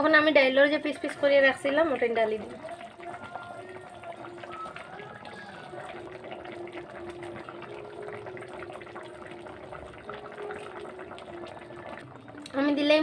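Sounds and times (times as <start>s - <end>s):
gravy bubbles popping: 1.6s - 13.0s.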